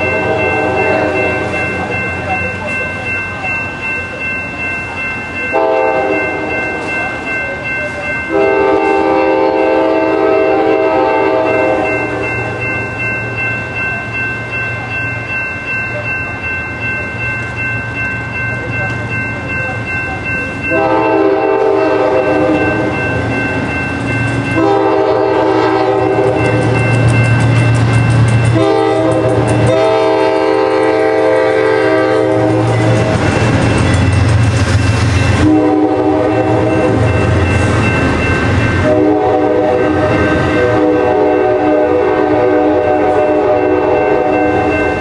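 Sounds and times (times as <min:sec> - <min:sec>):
train air horn blasts: 0:00.0 - 0:01.5, 0:05.5 - 0:06.5, 0:08.3 - 0:12.1, 0:20.7 - 0:22.9, 0:24.6 - 0:26.6, 0:28.5 - 0:33.1, 0:35.4 - 0:37.2, 0:38.8 - 0:44.6
train passing rumble: 0:00.0 - 0:45.0.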